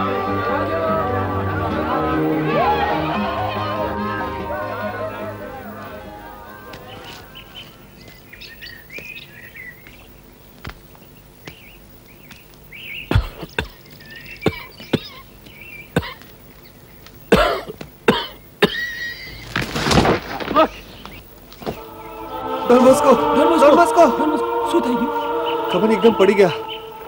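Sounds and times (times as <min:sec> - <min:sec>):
small birds chirping: 0:06.8 - 0:19.6, 0:20.7 - 0:22.2
man coughing harshly: 0:17.3 - 0:18.9.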